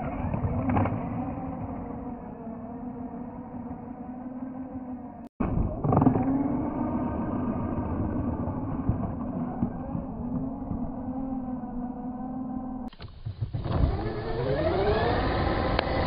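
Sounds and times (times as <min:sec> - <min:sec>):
electric motor whining: 0:05.8 - 0:16.0.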